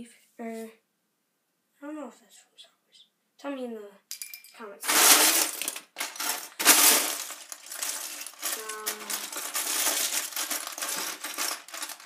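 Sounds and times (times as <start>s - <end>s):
plastic bricks clattering in a bin: 4.2s - 12.0s.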